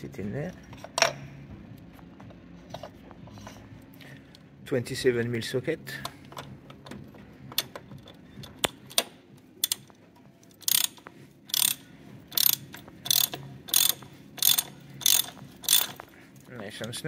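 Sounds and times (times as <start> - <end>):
ratchet wrench clicking: 7.6 - 9.9, 10.6 - 16.1.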